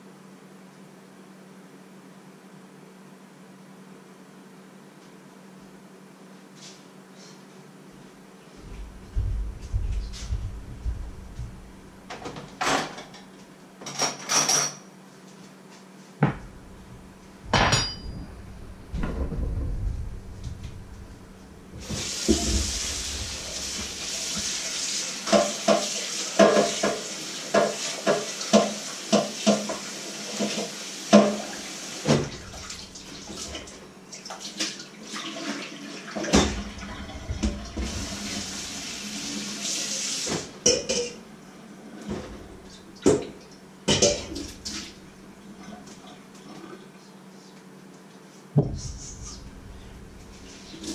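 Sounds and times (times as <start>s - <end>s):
crockery and pans clinking: 17.5s - 18.4s
tap running into sink: 21.8s - 24.6s, 25.2s - 33.7s.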